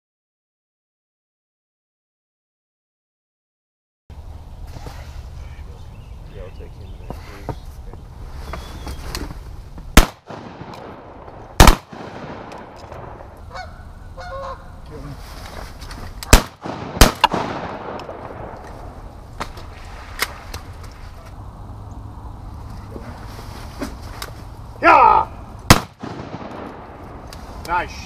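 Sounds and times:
loud sharp bangs with echo: 10.0 - 12.6, 16.3 - 18.5, 25.7 - 26.8
geese honking: 13.4 - 14.8.

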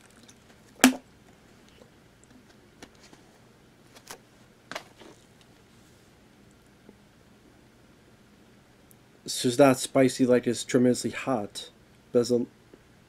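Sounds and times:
handling noises: 1.7 - 5.6.

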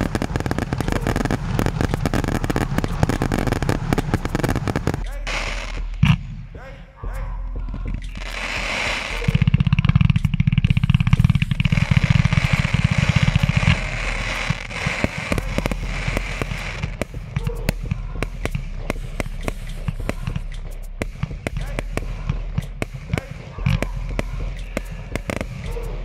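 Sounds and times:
fireworks crackling pops: 0.0 - 6.5, 7.9 - 26.0
fireworks launch thuds: 0.0 - 6.6.

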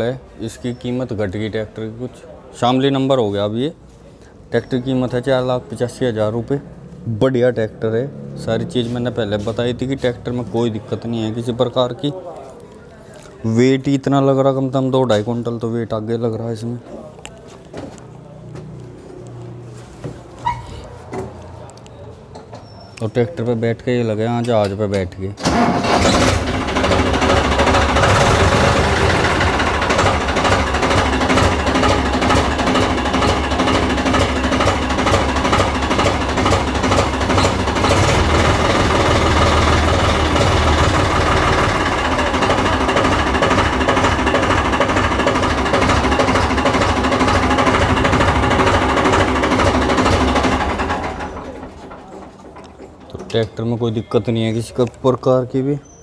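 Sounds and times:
tractor diesel engine clattering: 25.4 - 55.4.

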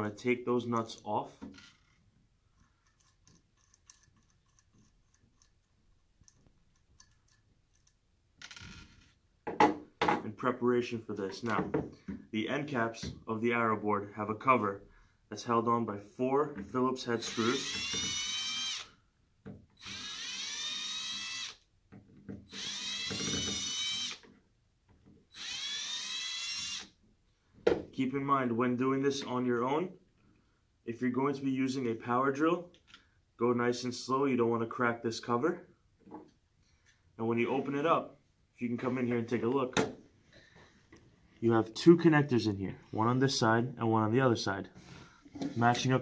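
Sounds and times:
cordless drill motor whine: 17.5 - 19.0, 19.8 - 21.6, 22.5 - 24.2, 25.3 - 26.9.

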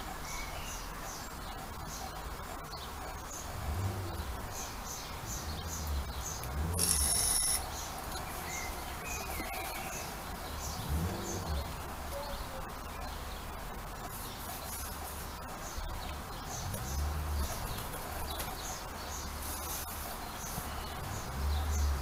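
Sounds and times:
small bird chirping: 0.0 - 22.0.

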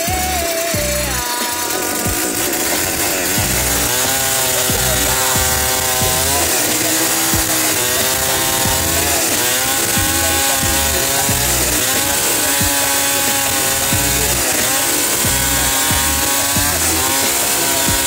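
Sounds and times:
chainsaw cutting log: 0.0 - 18.0.

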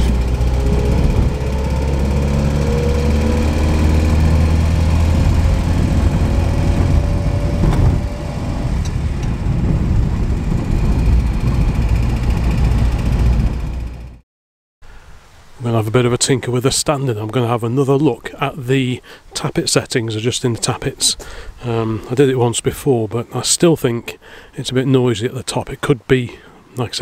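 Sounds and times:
car engine running: 0.0 - 14.2.

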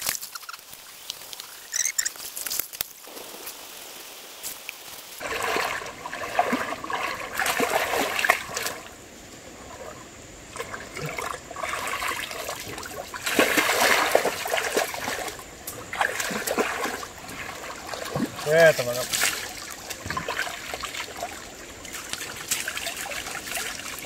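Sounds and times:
water splashing and trickling: 0.0 - 24.0.

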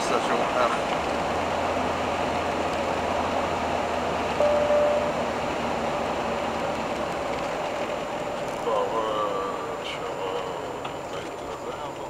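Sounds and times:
road and engine noise: 0.0 - 12.0
short steady tone: 4.4 - 5.4.

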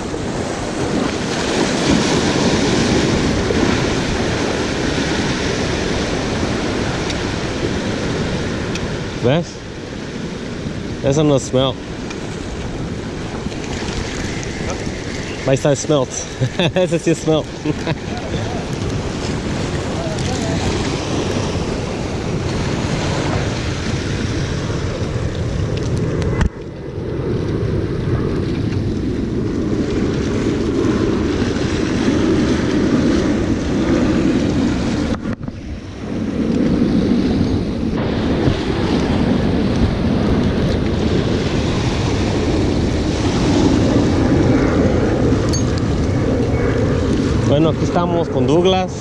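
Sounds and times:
waves breaking against rocks: 0.0 - 26.0
wind buffeting microphone: 0.0 - 49.0.

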